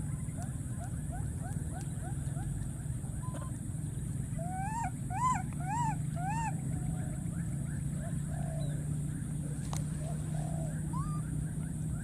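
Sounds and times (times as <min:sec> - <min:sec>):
steady low hum: 0:00.0 - 0:12.0
baby monkey crying: 0:04.4 - 0:06.6.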